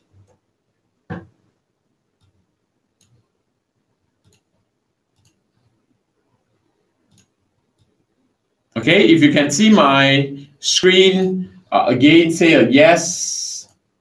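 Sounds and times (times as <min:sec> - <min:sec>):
computer mouse clicks: 0:02.2 - 0:03.3, 0:04.2 - 0:08.0.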